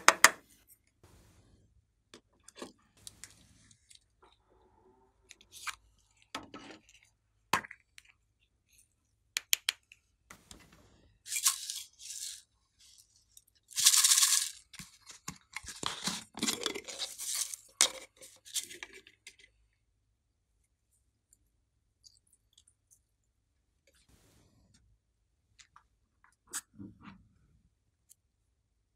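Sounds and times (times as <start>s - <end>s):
sprinkles scraping and rustling: 10.4s - 13.2s, 13.8s - 19.0s.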